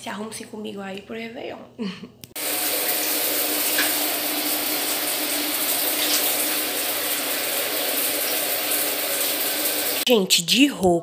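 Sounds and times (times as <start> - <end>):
shower water spraying: 2.4 - 10.1.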